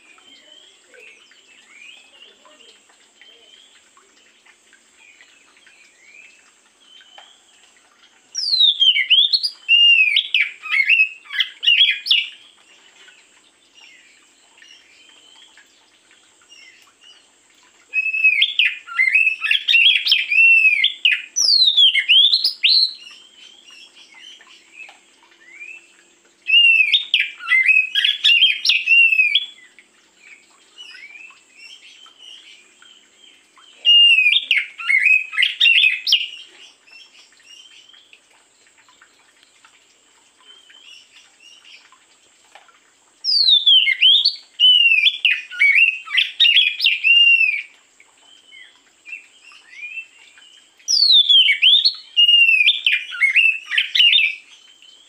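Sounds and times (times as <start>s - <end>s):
bird singing whistled notes: 8.4s - 12.4s, 17.9s - 24.3s, 26.5s - 29.7s, 33.7s - 37.9s, 43.2s - 47.7s, 50.9s - 54.7s.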